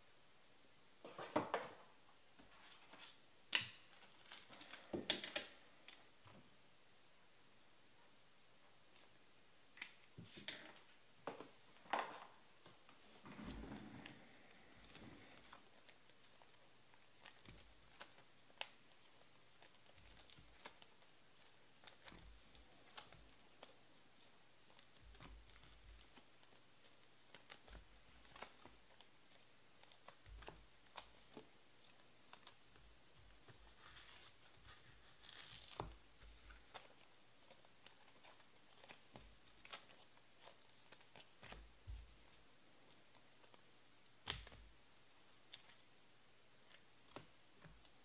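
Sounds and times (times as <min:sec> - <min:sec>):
cards handled in plastic sleeves: 0:02.5 - 0:06.2, 0:13.9 - 0:48.0
plastic crinkling: 0:13.1 - 0:42.3.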